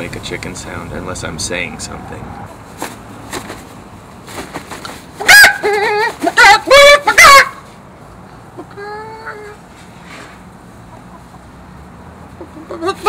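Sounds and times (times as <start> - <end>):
man imitating chicken clucks: 5.2 - 7.7, 8.5 - 9.7, 12.3 - 13.0.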